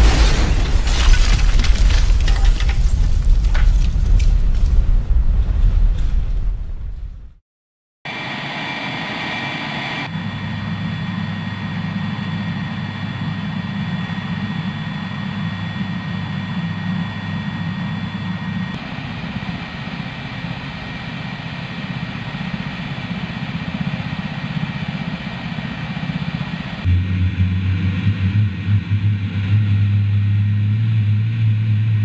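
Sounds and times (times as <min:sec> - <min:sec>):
high turbine whine: 0:08.1 - 0:32.0
helicopter engines low rumble: 0:08.2 - 0:32.0.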